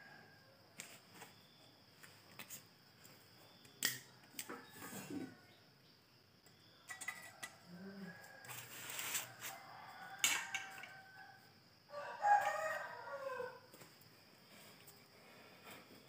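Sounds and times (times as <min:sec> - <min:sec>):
rooster crowing: 0:07.2 - 0:13.7.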